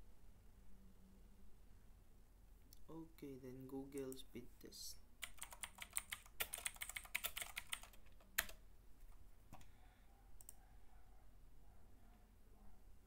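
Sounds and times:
keyboard typing: 5.2s - 8.6s, 10.4s - 10.6s.

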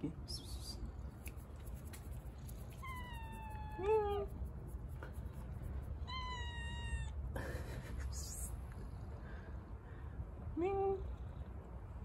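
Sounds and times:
kitten meowing: 2.6s - 4.3s, 6.0s - 7.2s
lower louder cat cry: 2.6s - 4.3s, 6.0s - 7.2s.

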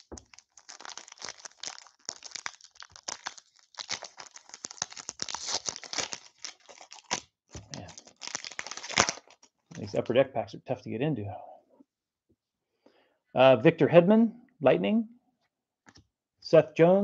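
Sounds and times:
foil wrapper crinkling and tearing: 0.0s - 9.8s.

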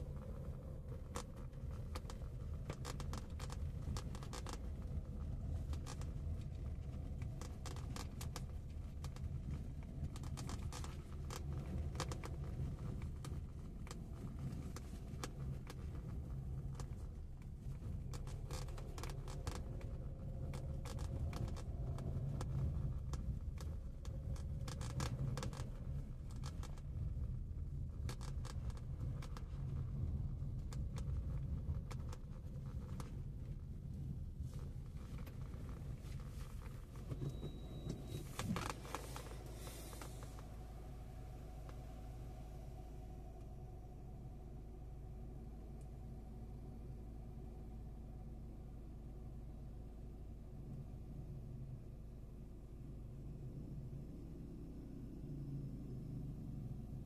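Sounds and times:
small clicks and crackles: 0.0s - 42.5s
vehicle rumble: 0.0s - 57.0s.

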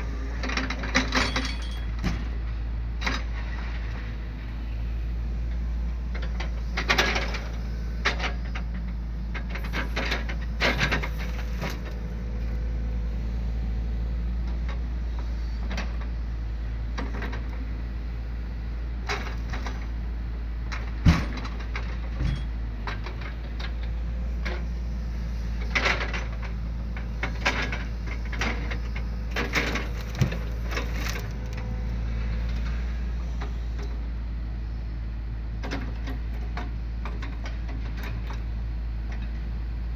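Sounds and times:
diesel engine droning: 0.0s - 39.9s.

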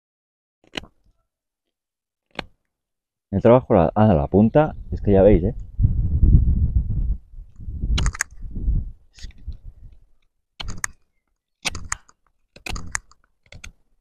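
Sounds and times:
low rumble: 4.7s - 9.9s.

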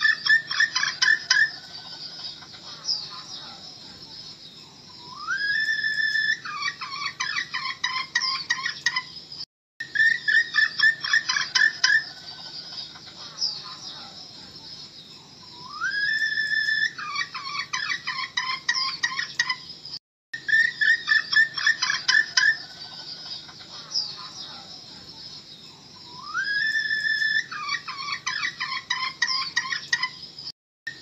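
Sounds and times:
hen clucking rapidly: 0.0s - 3.3s, 6.4s - 9.0s, 10.0s - 13.8s, 16.9s - 19.6s, 20.6s - 24.7s, 27.4s - 30.1s.

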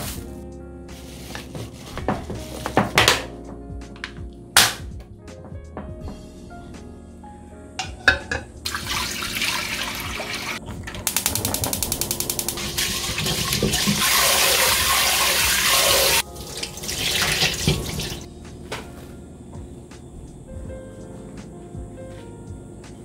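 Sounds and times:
tap water running and sloshing: 8.1s - 11.1s, 12.6s - 18.3s
water poured into steel sink: 8.7s - 10.6s, 12.5s - 18.2s.

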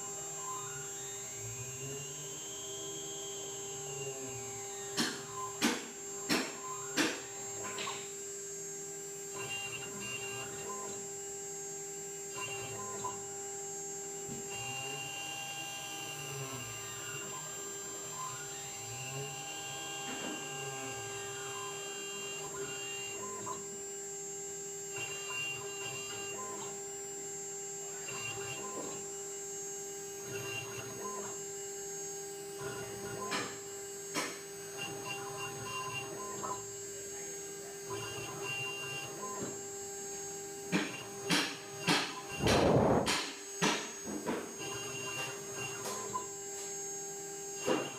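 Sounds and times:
motors whining: 0.0s - 8.1s, 14.3s - 23.9s, 27.7s - 47.9s
spindle humming: 37.8s - 43.2s.

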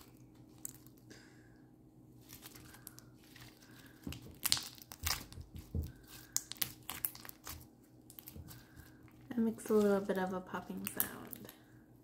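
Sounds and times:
foam slime popping and crackling: 2.3s - 8.7s.

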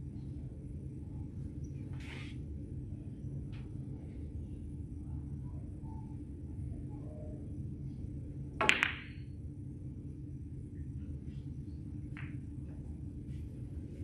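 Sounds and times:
steady low hum: 0.0s - 14.0s
cue striking ball: 8.6s - 9.2s
snooker balls clicking: 8.6s - 9.2s, 12.1s - 12.6s.

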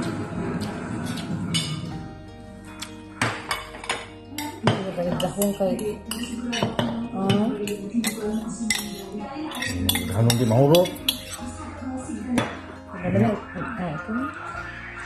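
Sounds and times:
cutlery clinking on ceramic plate: 3.2s - 11.5s.

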